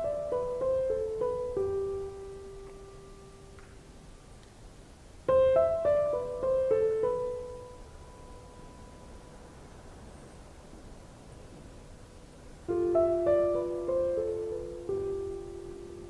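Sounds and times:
piano music: 0.0s - 3.6s, 5.3s - 9.8s, 11.8s - 16.0s.

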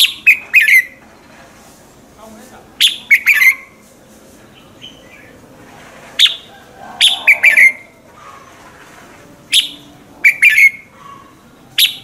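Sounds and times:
bird singing whistled phrases: 2.8s - 3.7s, 6.2s - 7.9s, 9.5s - 10.9s, 11.8s - 12.0s.

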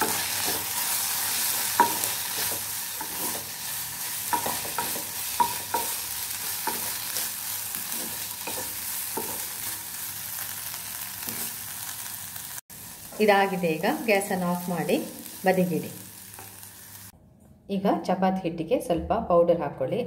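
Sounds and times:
spatula knocking and scraping pan: 0.0s - 9.9s
vegetables sizzling in pan: 0.0s - 17.1s.

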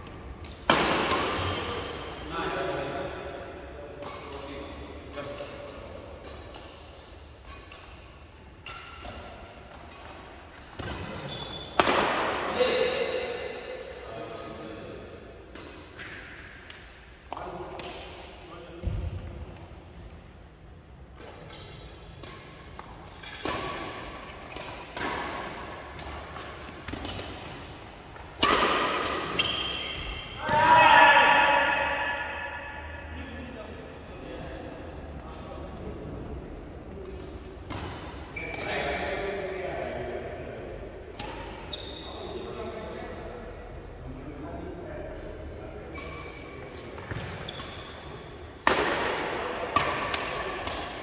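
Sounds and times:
low hum of hall: 0.0s - 51.0s
racket hitting shuttlecock: 0.1s - 2.1s, 5.1s - 13.6s, 21.3s - 30.6s, 46.7s - 51.0s
rackets striking shuttlecock: 7.4s - 12.5s, 28.2s - 30.6s.

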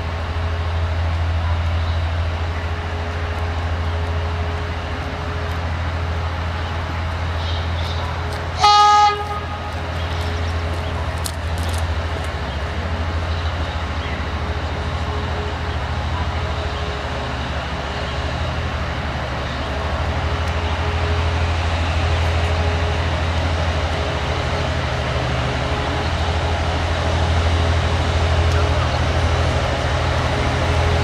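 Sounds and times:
diesel engine droning: 0.0s - 31.0s
locomotive horn toot: 8.6s - 10.2s.

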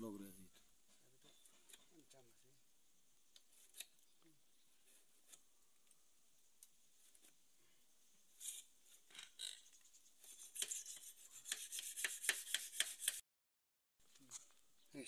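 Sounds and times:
wire rod scraping in tubes: 8.4s - 13.2s.

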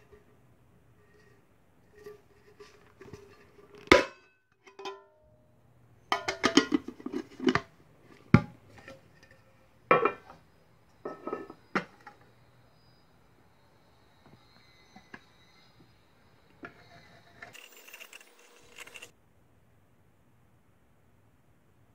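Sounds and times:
metal can lid clicking and clattering: 6.1s - 7.7s.

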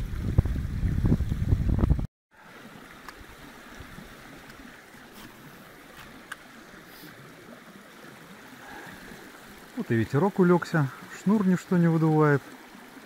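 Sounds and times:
wind buffeting microphone: 0.0s - 2.1s
running water hiss: 2.3s - 13.0s.

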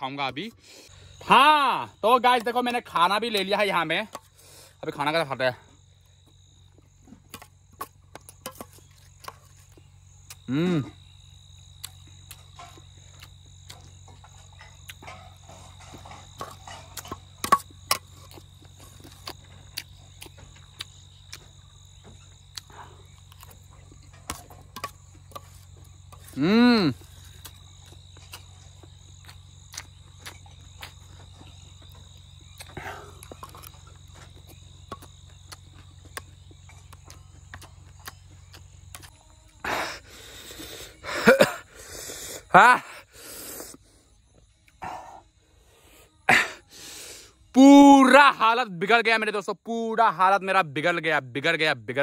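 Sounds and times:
insect drone: 0.0s - 52.0s
person humming: 10.5s - 10.9s, 26.4s - 27.0s
breathy gasps: 32.8s - 33.3s.

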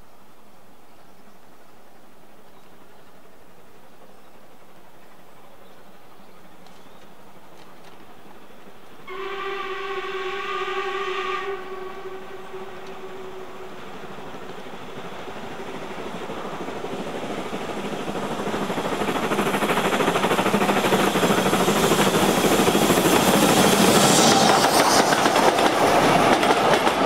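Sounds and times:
train running noise: 0.2s - 27.0s
steam locomotive whistle: 9.0s - 14.3s.

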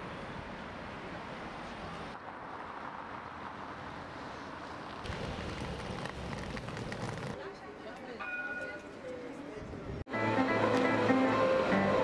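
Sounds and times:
low traffic rumble: 0.0s - 7.4s
road traffic: 0.0s - 8.0s, 10.1s - 12.0s.

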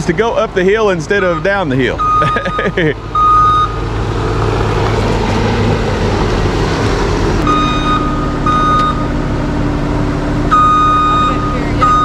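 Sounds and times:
heavy vehicle engine running: 0.0s - 12.0s
backup alarm beeps: 1.2s - 3.8s, 7.4s - 9.1s, 10.5s - 12.0s.

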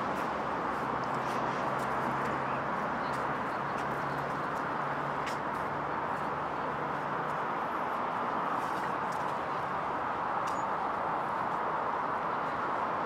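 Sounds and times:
footsteps on paving stones: 0.0s - 6.4s
road traffic hum: 0.0s - 13.0s.

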